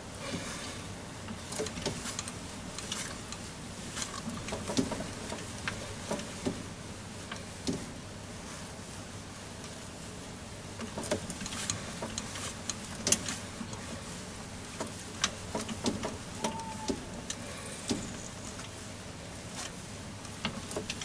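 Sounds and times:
drill squeal: 0:16.4 - 0:17.0.

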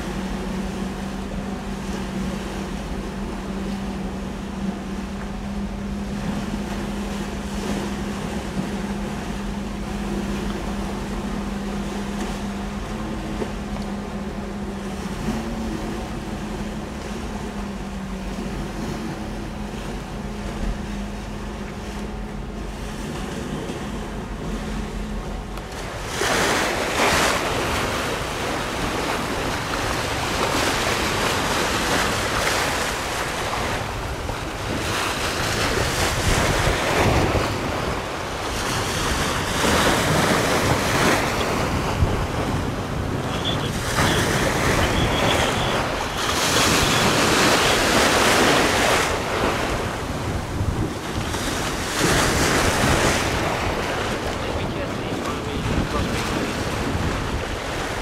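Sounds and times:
strong wind buffeting microphone: 0:33.5 - 0:58.0.

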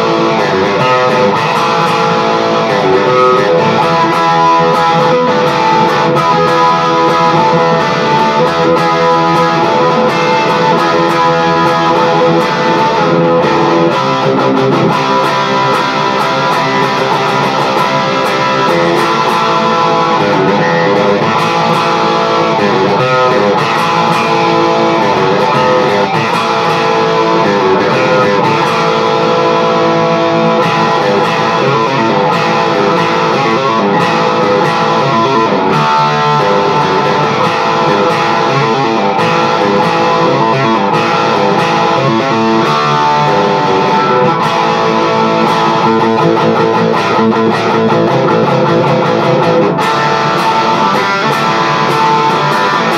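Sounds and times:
overdriven electric guitar: 0:00.0 - 0:52.9.

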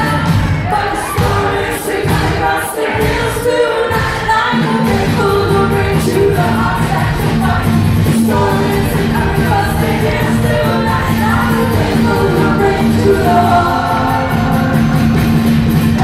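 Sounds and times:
drums: 0:00.0 - 0:16.0
guitar: 0:00.0 - 0:16.0
women singing: 0:00.0 - 0:16.0
pulsing bass line: 0:03.0 - 0:16.0.

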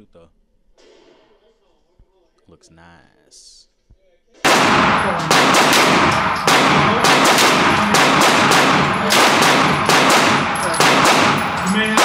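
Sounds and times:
pistol shots echoing indoors: 0:04.4 - 0:12.0.

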